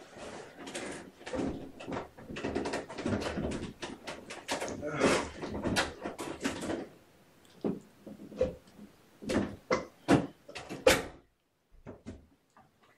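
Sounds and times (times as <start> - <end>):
knocks and clatters: 0.2 - 6.9.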